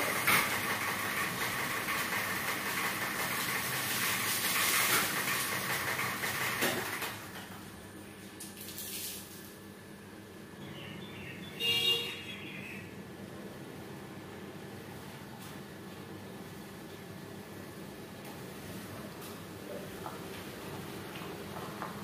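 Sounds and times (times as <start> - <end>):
pressure washer spraying water: 0.0 - 6.6.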